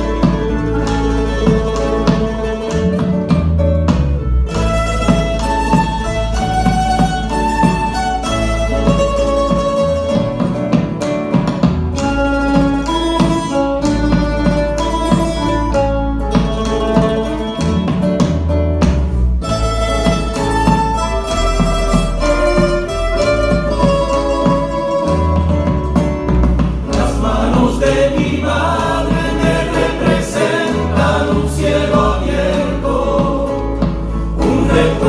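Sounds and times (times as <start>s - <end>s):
acoustic guitars strumming: 0.0s - 35.0s
lute melody: 0.0s - 35.0s
low bass line: 11.7s - 35.0s.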